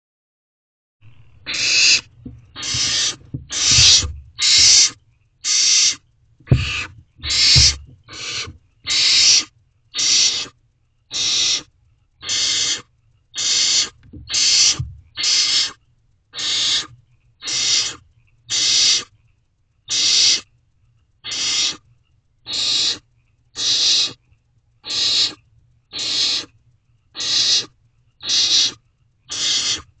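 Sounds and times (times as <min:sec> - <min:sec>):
owl nestlings hissing begging calls: 0:01.4 - 0:19.1, 0:19.9 - 0:20.5, 0:21.2 - 0:21.8, 0:22.4 - 0:23.0, 0:23.6 - 0:24.2, 0:24.8 - 0:26.5, 0:27.2 - 0:29.9
low thumps: 0:02.1 - 0:04.7, 0:06.5 - 0:08.6, 0:14.0 - 0:15.2.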